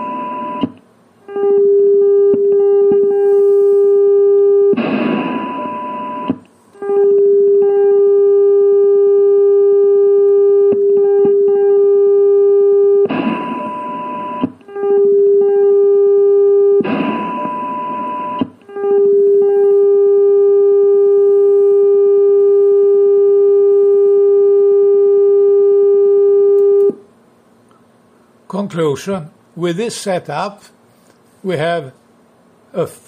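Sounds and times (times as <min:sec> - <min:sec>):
loud steady tone: 0:00.0 - 0:27.0
radio hiss: 0:03.2 - 0:04.0.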